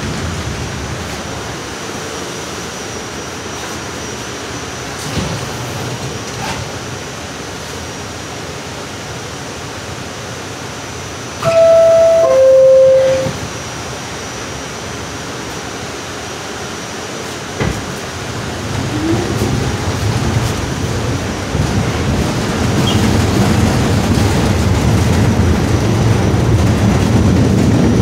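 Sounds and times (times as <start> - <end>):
train hum: 0.0 - 28.0
two-tone door chime: 11.4 - 13.5.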